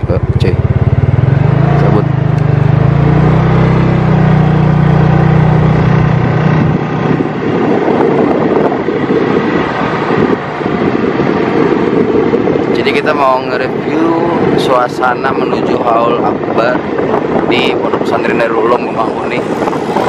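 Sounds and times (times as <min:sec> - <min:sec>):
vehicle engine running: 0:00.0 - 0:12.7
rough rushing noise: 0:00.0 - 0:20.0.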